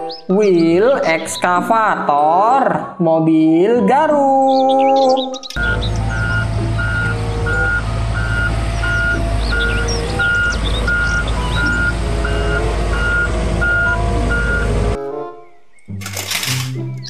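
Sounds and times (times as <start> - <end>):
diesel engine running: 5.6 - 15.0
warning alarm beeping: 5.6 - 15.0.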